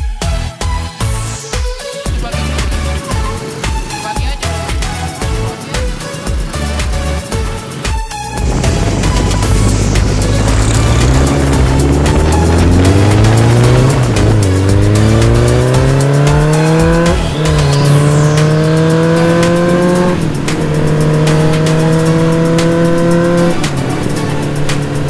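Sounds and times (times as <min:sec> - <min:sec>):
engine accelerating hard: 0:02.2 - 0:25.0
sweeping whoosh: 0:07.6 - 0:24.2.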